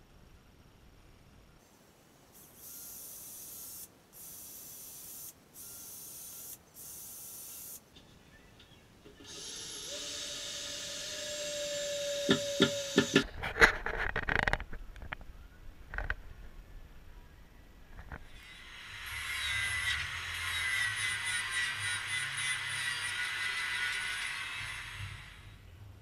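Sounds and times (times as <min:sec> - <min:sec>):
cordless drill into timber: 0:09.2 - 0:13.3
sharp knocks: 0:12.3 - 0:13.3.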